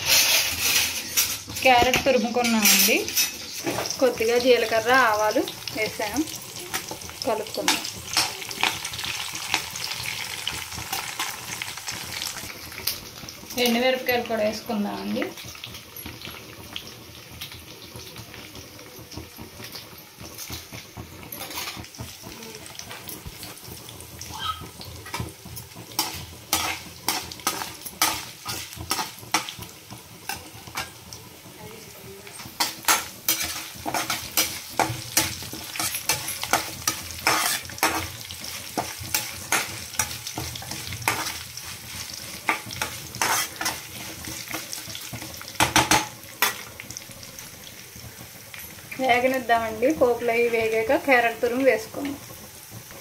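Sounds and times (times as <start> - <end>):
spatula scraping pan: 0.0 - 5.0, 21.2 - 22.1, 24.7 - 31.1, 32.3 - 46.8
spices sizzling in oil: 0.0 - 53.0.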